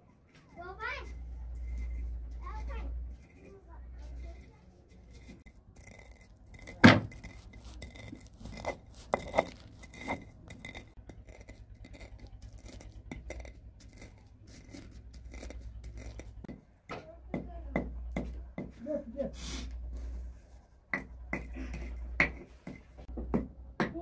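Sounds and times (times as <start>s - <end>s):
kitchenware clinking and scraping: 0.8s - 16.5s.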